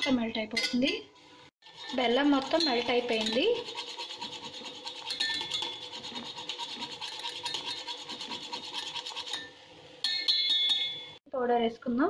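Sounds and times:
whisk scraping metal pan: 1.6 - 9.6
ringing metallic clink: 9.4 - 11.2.

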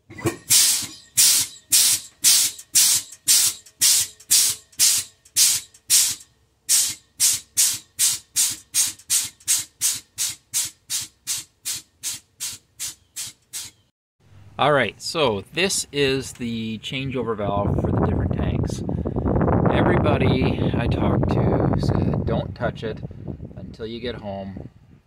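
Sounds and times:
rhythmic chuffing hiss: 0.5 - 11.4.

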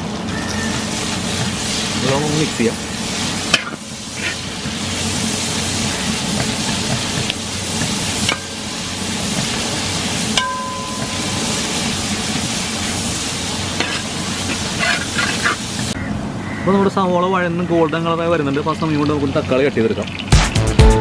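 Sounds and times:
onions sizzling in hot oil: 0.0 - 16.0
metal spatula stirring: 3.3 - 15.7.

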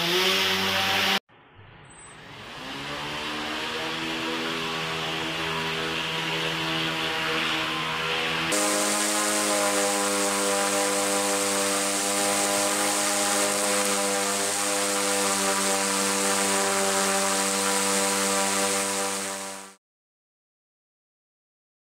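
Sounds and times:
electric motor and propeller buzzing: 0.0 - 1.2, 1.9 - 19.8
air hissing: 8.5 - 16.2.

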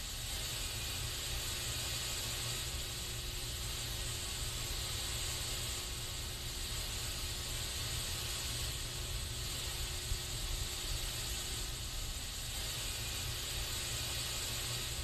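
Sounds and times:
aerosol spray can hissing: 0.0 - 15.0.

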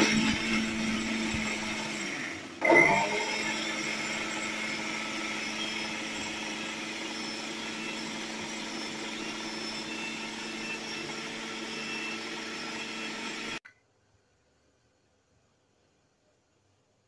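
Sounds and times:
mixer grinder running: 0.0 - 13.6.

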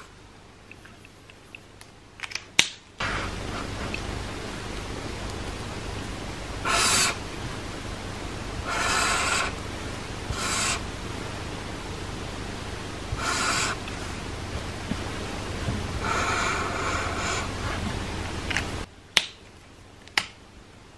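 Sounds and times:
faint hiss: 3.0 - 20.9.

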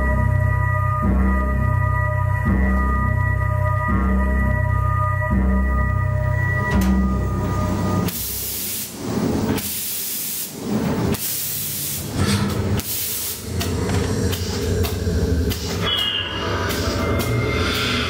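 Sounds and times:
loud hissing bursts: 8.2 - 9.0, 9.6 - 10.6, 11.2 - 12.2, 12.8 - 13.5
low rumble: 13.4 - 18.0.

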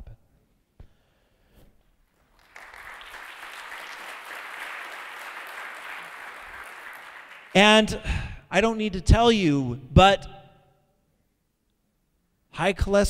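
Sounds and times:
audience applauding: 2.3 - 7.9.

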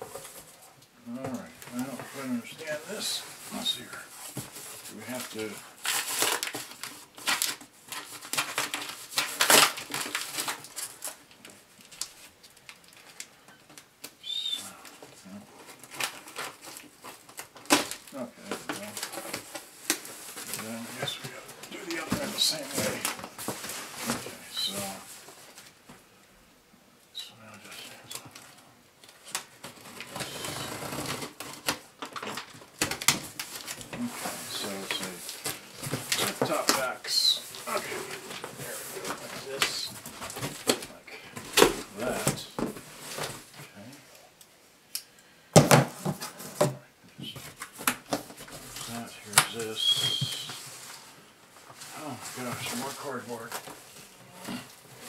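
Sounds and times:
cardboard scraping and tearing: 29.6 - 31.8.

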